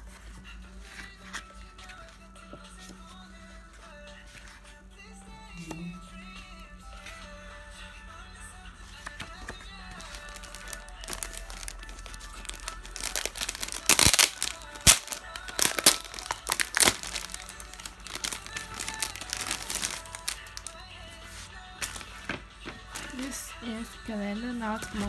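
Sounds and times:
quiet background music: 0.0 - 25.0
plastic wrapping crinkling: 9.9 - 20.8, 21.8 - 22.2, 24.8 - 25.0.

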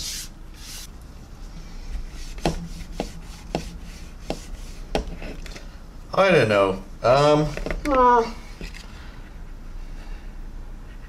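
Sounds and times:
hand rubbing plastic wing: 2.1 - 5.5.

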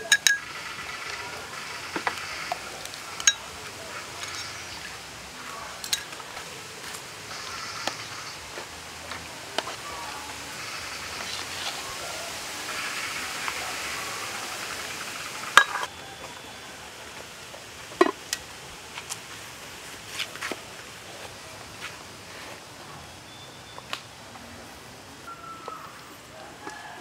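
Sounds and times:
metal spoon clinking against pot: 0.0 - 0.4, 15.6 - 15.9
pot lid clanking: 15.5 - 15.9.

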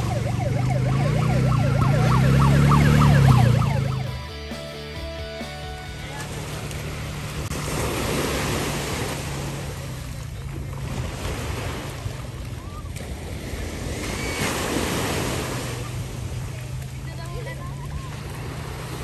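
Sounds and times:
small waves breaking on shore: 5.9 - 19.0.

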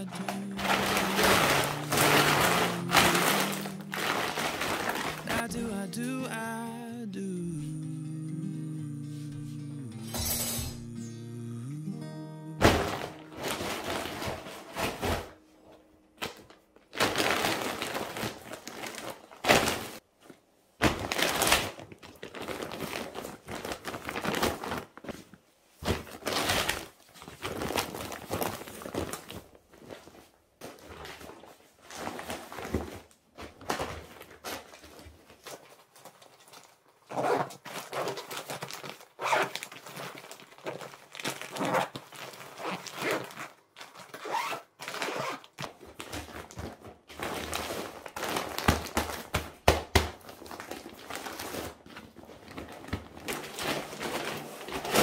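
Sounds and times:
plastic case rustling and crinkling: 0.0 - 5.5, 12.6 - 55.0
zip being pulled closed: 37.1 - 38.1, 44.2 - 45.5.

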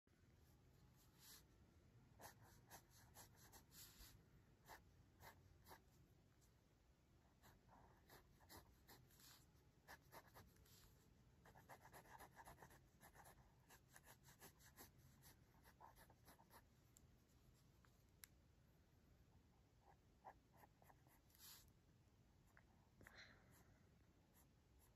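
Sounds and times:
pencil scratching on paper: 2.2 - 6.0, 7.4 - 16.7.

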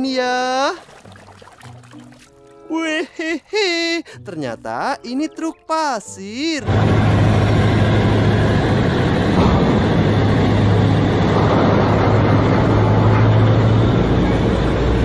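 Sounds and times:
haul truck diesel engine droning: 6.3 - 15.0.

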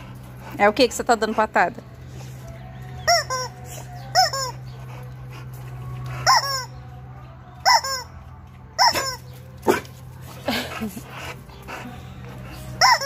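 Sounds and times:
rubber chicken toy squawking: 3.1 - 3.5.

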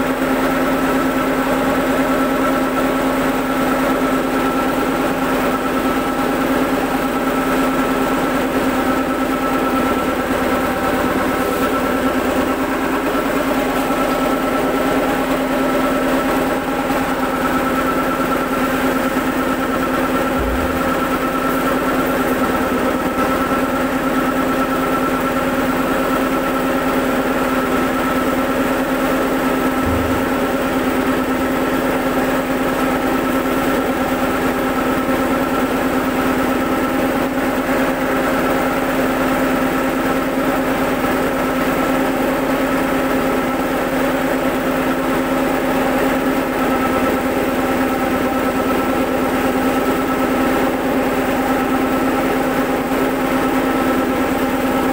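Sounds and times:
machine humming: 16.9 - 24.7, 29.6 - 31.6
steady machine tones: 20.2 - 23.3.

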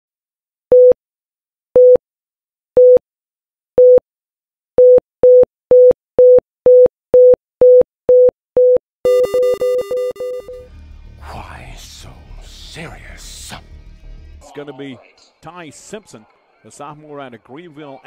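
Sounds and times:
electronic beeps: 7.6 - 10.7.

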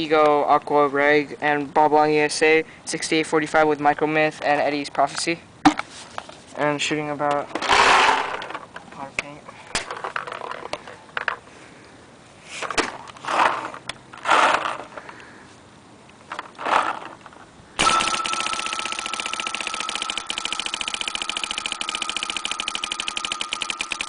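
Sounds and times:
steady high whine: 17.8 - 24.0.

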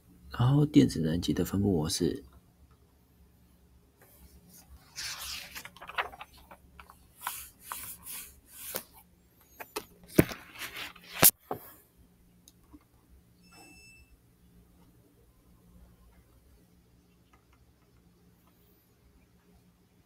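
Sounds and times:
rubbing and scraping: 10.2 - 11.4.

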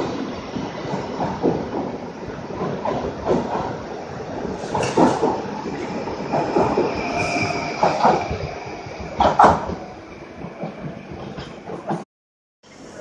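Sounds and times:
train running past: 0.0 - 12.0
high squeal: 5.6 - 10.3.

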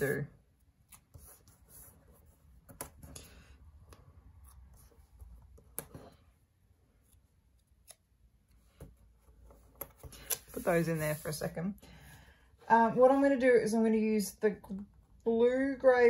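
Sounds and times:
paper rustling: 8.7 - 11.5.

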